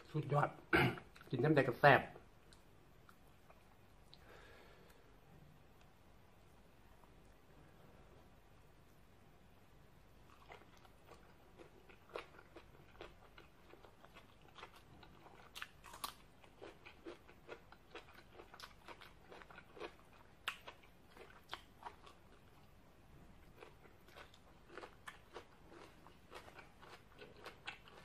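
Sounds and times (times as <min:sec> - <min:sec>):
person chewing crunchy food: 0:10.3 - 0:28.0.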